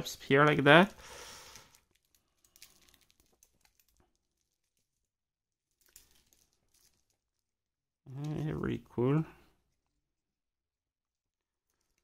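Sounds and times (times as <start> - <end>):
plastic film crinkling: 0.4 - 7.6.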